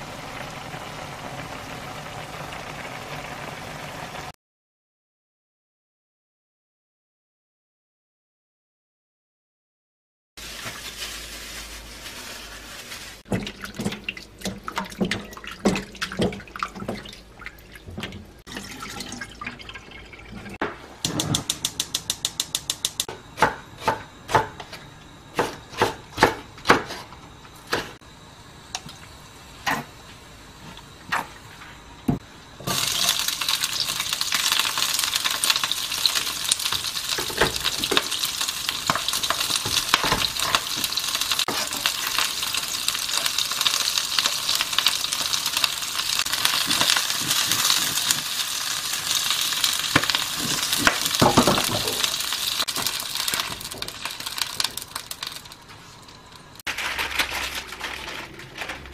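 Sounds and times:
onions sizzling in hot pan: 0:00.0 - 0:04.3, 0:32.6 - 0:56.1
knife chopping on wooden board: 0:23.4 - 0:24.6.

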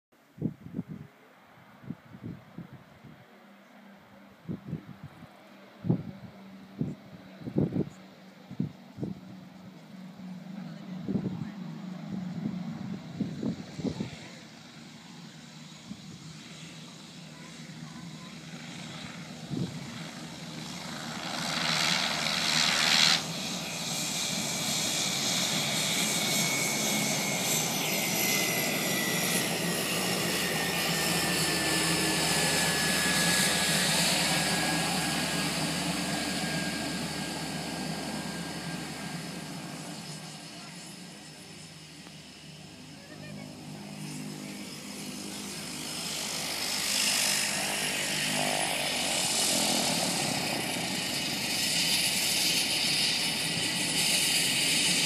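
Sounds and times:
turboprop engine and propeller: 0:00.3 - 0:55.0
turbine whine: 0:05.8 - 0:55.0.

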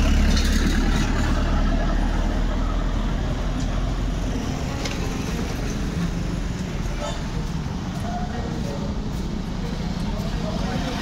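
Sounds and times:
vehicle passing by: 0:00.0 - 0:06.5
road traffic rumble: 0:00.0 - 0:11.0.

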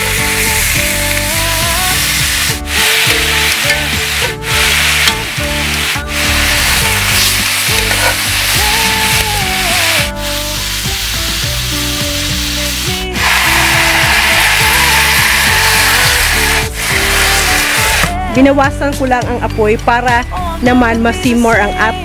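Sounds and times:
meat sizzling in a skillet: 0:00.0 - 0:18.1
metal tongs shifting meat: 0:00.4 - 0:10.1.

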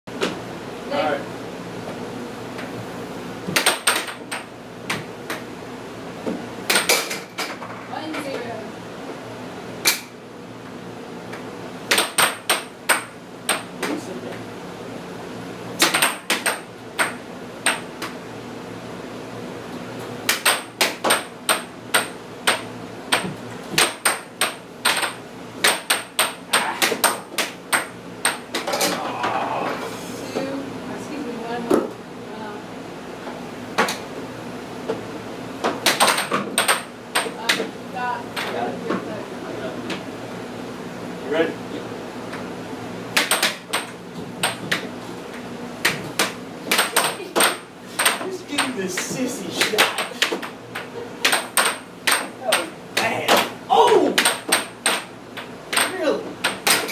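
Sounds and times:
air hockey puck clacking: 0:03.5 - 0:05.4, 0:06.7 - 0:08.3, 0:11.9 - 0:14.0, 0:15.8 - 0:18.2, 0:20.3 - 0:29.0, 0:35.6 - 0:37.7, 0:43.2 - 0:53.6, 0:54.2 - 0:56.9.

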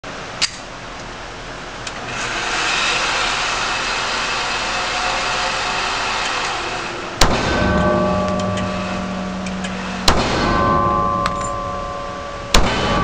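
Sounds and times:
steady rushing noise: 0:02.8 - 0:13.0
sharp crack: 0:07.2 - 0:13.0.

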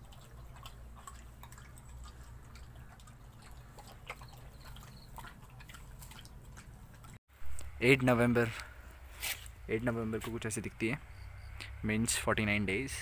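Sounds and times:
dog lapping water: 0:00.0 - 0:07.2.

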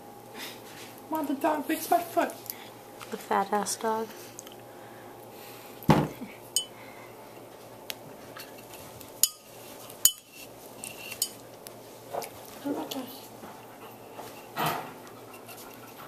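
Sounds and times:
thump: 0:05.9 - 0:06.2.

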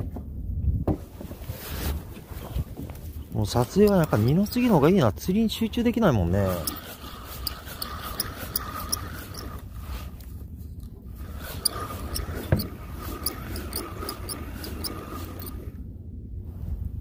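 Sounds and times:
fishing reel ticking: 0:03.6 - 0:04.8, 0:06.4 - 0:09.6, 0:11.4 - 0:15.6.

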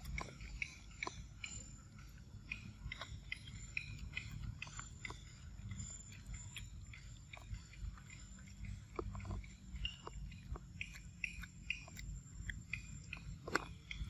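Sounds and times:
monkey chewing wet fruit: 0:00.0 - 0:14.0.

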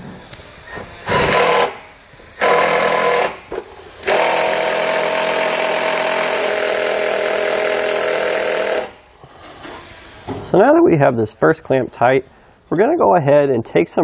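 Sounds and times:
cordless drill driving screw into metal: 0:01.0 - 0:01.8, 0:02.4 - 0:09.0.

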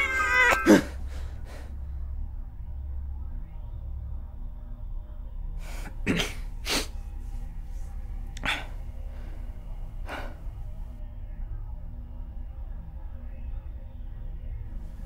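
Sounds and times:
low drone: 0:00.0 - 0:15.0
man breathing sharply: 0:08.4 - 0:10.8.

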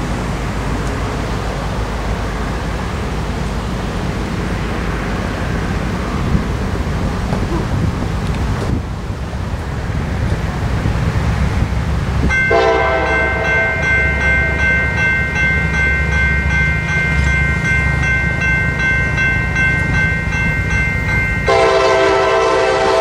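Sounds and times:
train air horn chord: 0:12.5 - 0:14.6, 0:21.5 - 0:23.0.

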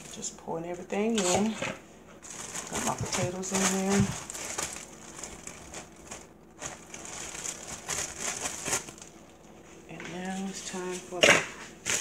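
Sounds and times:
plastic bag crinkling: 0:01.0 - 0:09.6, 0:11.8 - 0:12.0.

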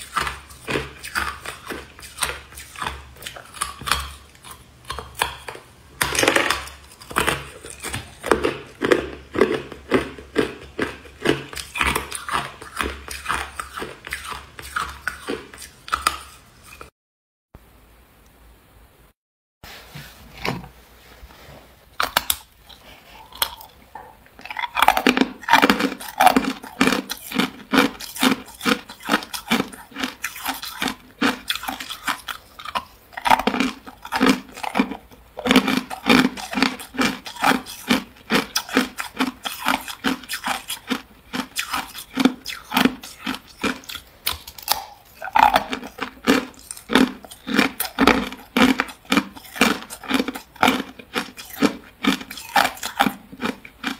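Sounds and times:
ice cubes crunching in mouth: 0:00.0 - 0:16.9, 0:22.0 - 0:53.9.

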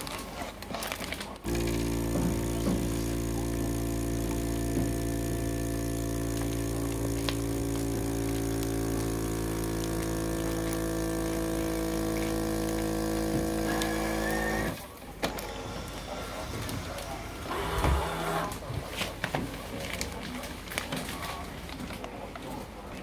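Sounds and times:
vacuum pump humming: 0:01.5 - 0:14.9.

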